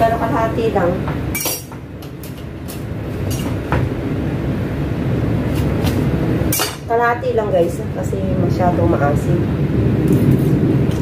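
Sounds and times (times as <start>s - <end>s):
low rumble: 3.9s - 11.0s.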